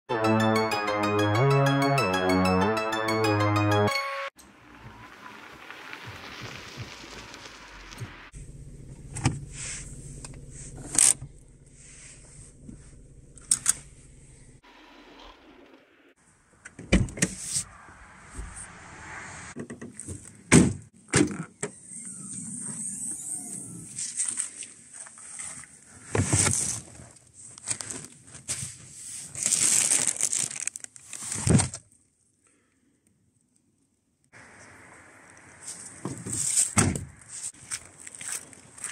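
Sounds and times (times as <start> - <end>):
plastic bags rustling: 26.4 - 31.5.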